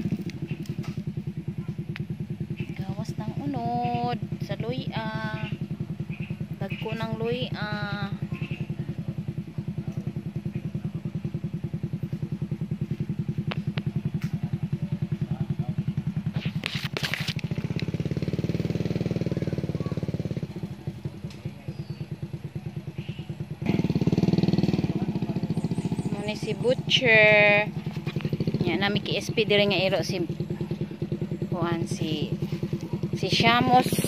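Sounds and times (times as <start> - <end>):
small engine puttering: 0.0 - 34.0
rustle: 16.2 - 18.1.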